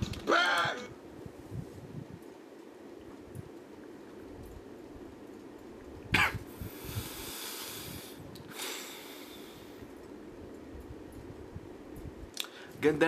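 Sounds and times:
low room hum: 0.0 - 13.0
person coughing burst of breath: 6.1 - 6.5
breathy exhalations: 6.2 - 9.8.

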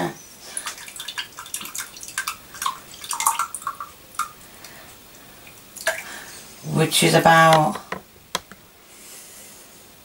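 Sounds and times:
soup pouring with wet splats: 0.5 - 6.3.

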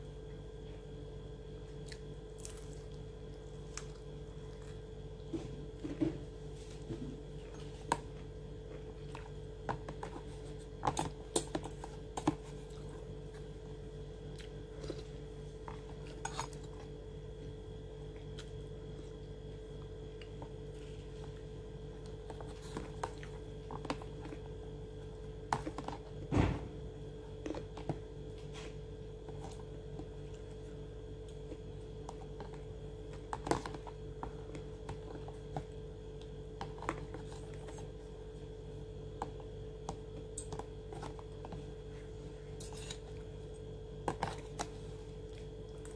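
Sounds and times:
clicks and clinks of food handling: 9.0 - 12.9, 39.2 - 41.6.

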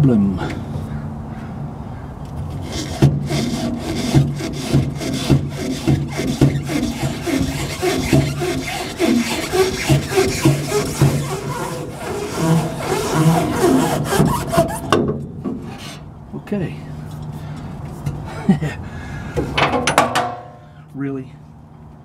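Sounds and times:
rubbing and scraping strokes: 2.5 - 16.1.

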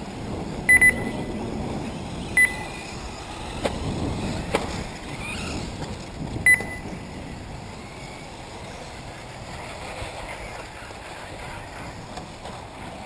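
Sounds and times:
rc buggies whining: 0.0 - 13.0
short high electronic beep: 0.7 - 1.3, 2.4 - 2.7, 6.5 - 6.9.

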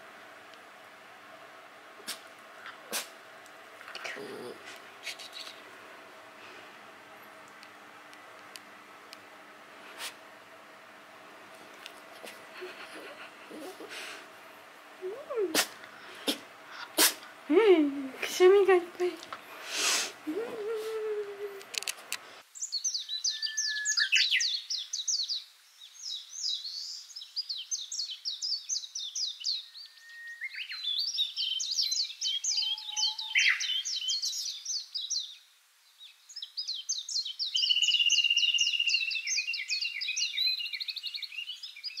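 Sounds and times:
songbirds chirping: 0.0 - 19.6, 21.7 - 42.0
bird whistle and trill: 22.6 - 25.4, 26.1 - 35.3, 36.5 - 42.0.

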